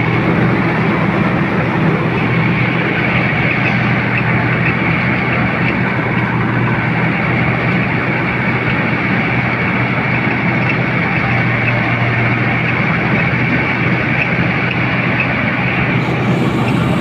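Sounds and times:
high whine: 0.0 - 17.0
tractor diesel engine running: 0.0 - 17.0.

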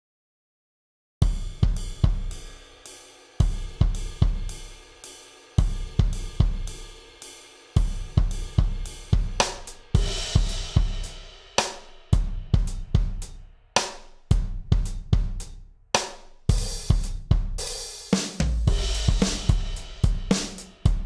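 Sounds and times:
kick snare and hi-hat hits: 1.2 - 21.0
crash cymbal: 1.3 - 12.2.

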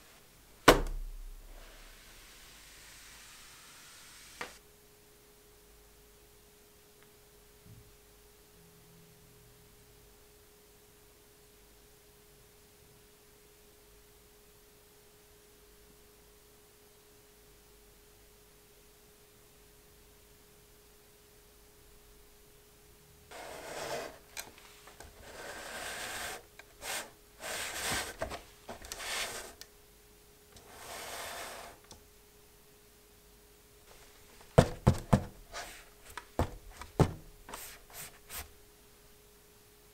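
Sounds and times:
faint steady hum: 0.0 - 39.9
rustling handling noise: 23.3 - 29.6, 33.9 - 38.5.

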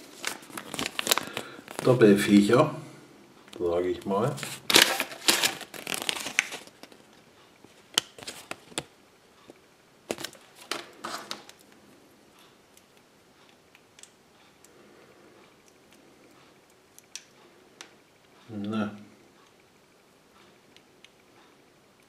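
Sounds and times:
paper leaflet rustling: 0.0 - 2.0, 4.3 - 7.0, 8.0 - 8.9, 10.1 - 11.5.

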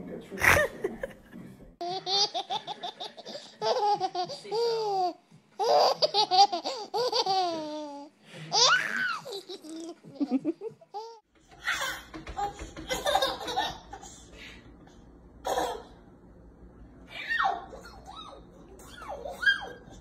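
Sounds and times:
child squealing: 17.1 - 19.9.

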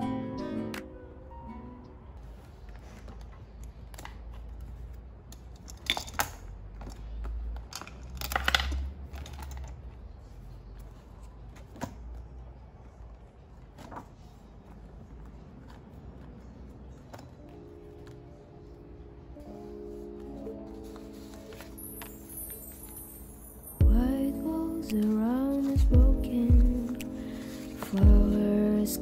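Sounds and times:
paper pages rustling: 2.2 - 5.6, 6.8 - 18.8, 19.4 - 23.5, 26.8 - 28.0.

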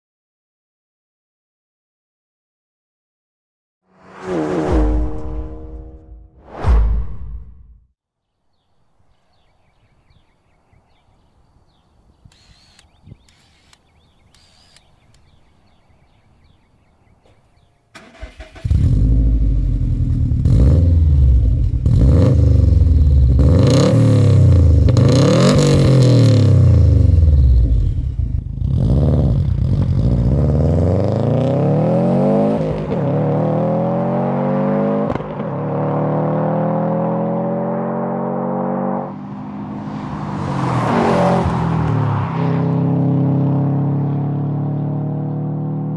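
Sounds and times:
car engine revving: 3.9 - 7.7, 18.0 - 45.9
car accelerating away: 18.0 - 45.9.

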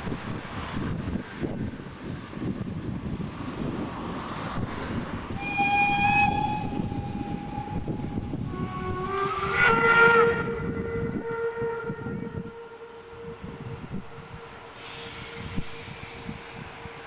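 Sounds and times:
steam train rumble: 0.0 - 17.0
steam locomotive whistle: 5.3 - 17.0.

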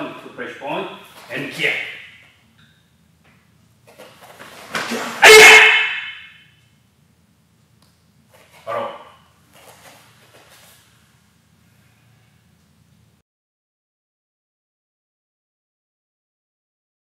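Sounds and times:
martial arts shout: 4.7 - 6.3.

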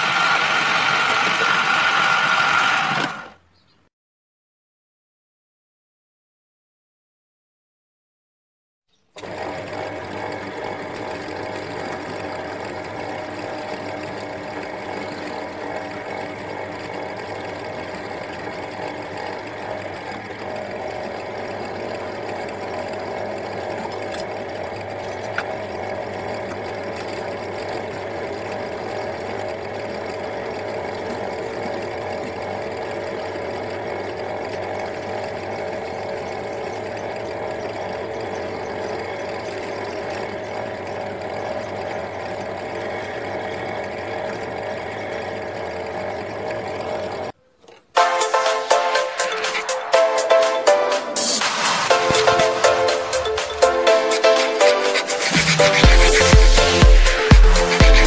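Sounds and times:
drill press grinding metal: 0.0 - 3.5, 9.0 - 58.0.

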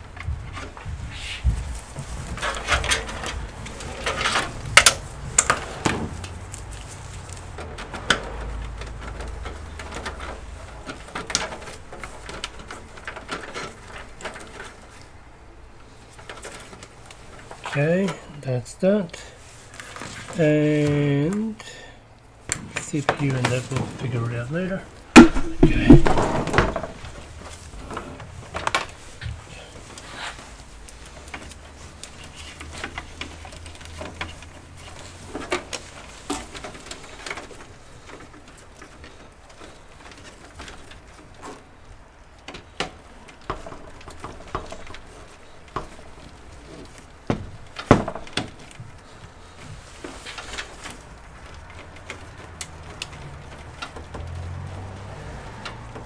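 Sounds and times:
cables and plastic parts clicking: 1.8 - 18.4, 22.2 - 56.0.

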